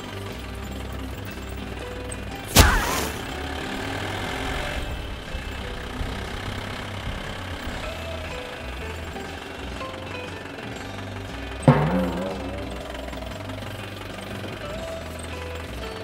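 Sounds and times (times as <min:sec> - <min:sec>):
tractor engine idling: 0:00.0 - 0:16.0
loud crack with ringing tail: 0:02.5 - 0:03.8, 0:11.7 - 0:14.4.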